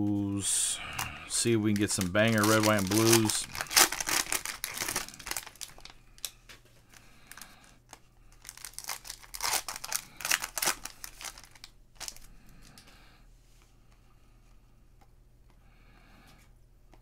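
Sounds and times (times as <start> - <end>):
plastic wrapper crinkling and tearing: 1.0 - 6.5, 7.3 - 12.8.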